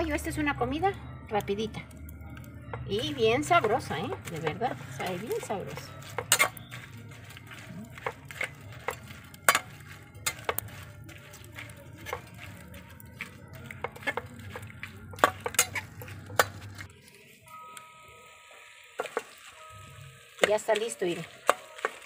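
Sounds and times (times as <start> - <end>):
metal spatula scraping a pot: 2.9 - 16.9, 21.2 - 22.0.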